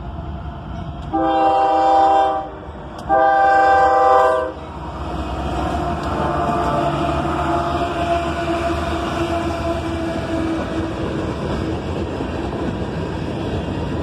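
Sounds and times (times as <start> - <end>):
locomotives rumbling past: 0.0 - 14.0
locomotive air horn blasts: 1.1 - 4.7, 5.8 - 10.8.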